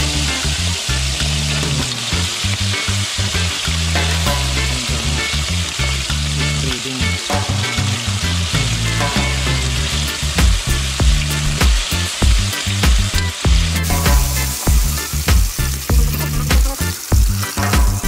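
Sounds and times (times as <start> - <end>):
meat sizzling in a wok: 0.0 - 18.0.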